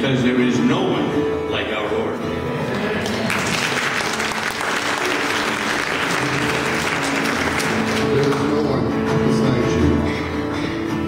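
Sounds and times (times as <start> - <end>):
congregation applauding: 2.6 - 9.1.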